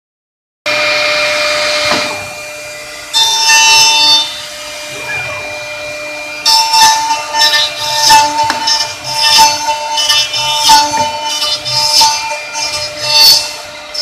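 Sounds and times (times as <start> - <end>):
machine spindle whine cutting wood: 0.7 - 14.0.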